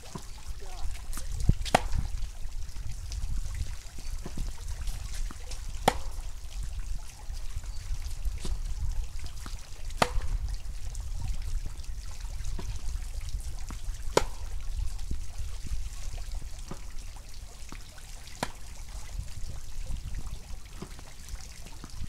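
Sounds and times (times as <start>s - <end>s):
wind rumble on microphone: 0.0s - 17.6s, 18.5s - 22.0s
tennis ball struck by racket: 1.6s - 2.2s, 5.1s - 6.3s, 8.4s - 8.6s, 9.4s - 10.5s, 14.1s - 14.6s, 18.4s - 18.7s, 20.8s - 21.2s.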